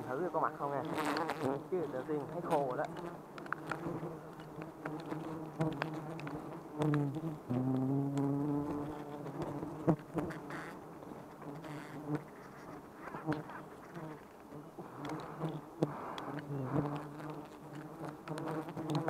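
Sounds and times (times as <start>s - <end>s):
swarm of bees buzzing: 0.0s - 12.3s, 13.1s - 19.0s
single bee buzzing close: 0.1s - 12.3s, 13.1s - 19.0s
faint clicks: 12.1s - 15.3s.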